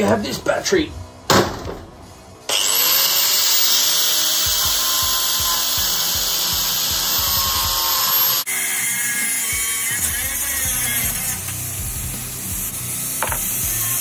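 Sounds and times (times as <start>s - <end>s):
angle grinder cutting metal pipe: 2.5s - 14.0s.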